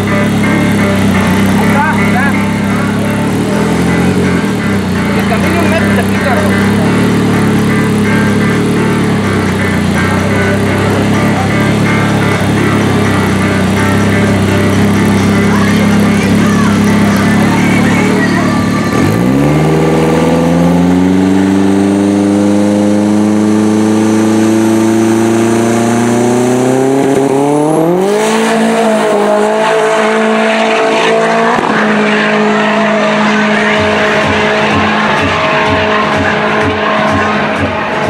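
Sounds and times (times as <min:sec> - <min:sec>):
turbocharged car engine revving: 0:00.0 - 0:38.0
turbo whistle: 0:31.6 - 0:38.0.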